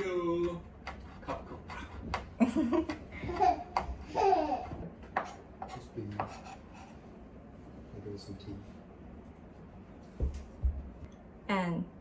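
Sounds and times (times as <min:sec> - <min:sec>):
knife chopping on wooden board: 0:00.4 - 0:04.0
woman laughing: 0:02.4 - 0:03.6.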